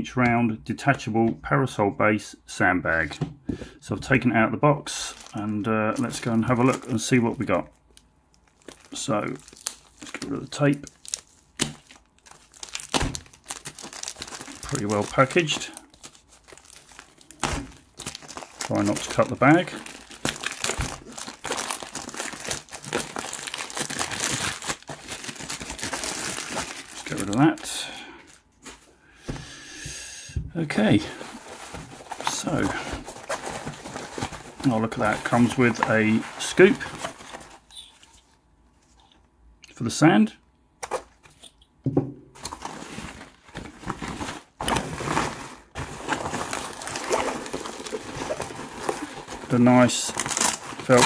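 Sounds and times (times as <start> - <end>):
plastic bag crinkling: 4.9 - 28.9, 30.9 - 39.0, 42.4 - 51.0.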